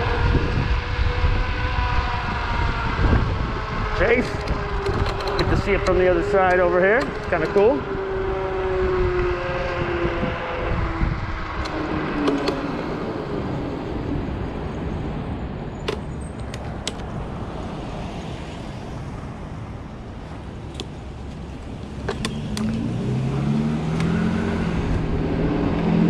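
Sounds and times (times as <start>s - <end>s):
electric motor whine: 0.0s - 13.6s
wind and road rumble: 0.0s - 26.0s.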